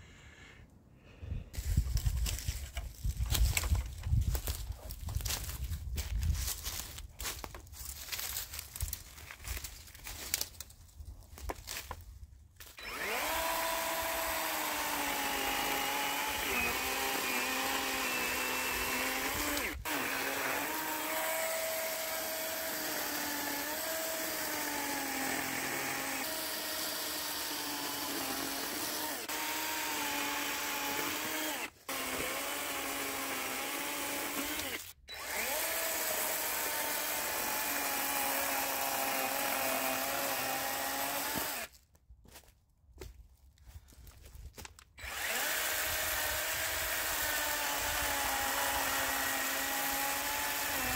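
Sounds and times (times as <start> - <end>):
power tool running: 12.6 - 41.7, 45.0 - 50.9.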